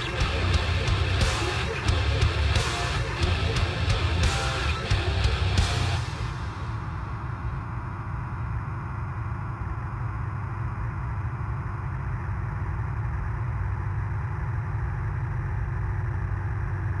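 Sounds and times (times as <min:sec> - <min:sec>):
heavy metal distorted guitars: 0:00.0 - 0:08.0.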